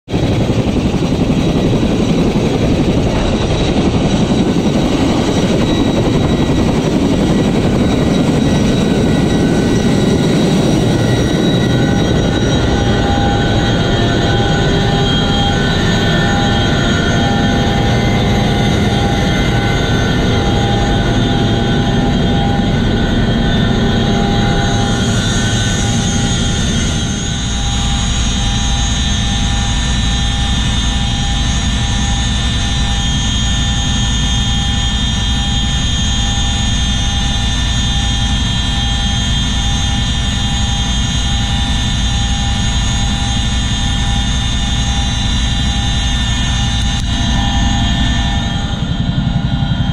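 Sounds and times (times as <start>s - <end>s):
deep rotor drone: 0.0s - 49.9s
helicopter turbine whine: 0.1s - 49.9s.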